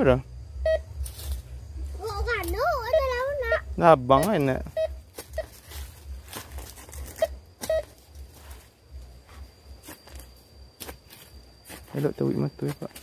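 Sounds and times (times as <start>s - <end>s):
faint steady high tone: 0.0s - 6.2s, 6.9s - 13.0s
metal detector beeps: 0.6s - 1.3s, 3.5s - 6.1s, 6.9s - 13.0s
rustling and knocking in dirt: 5.0s - 13.0s.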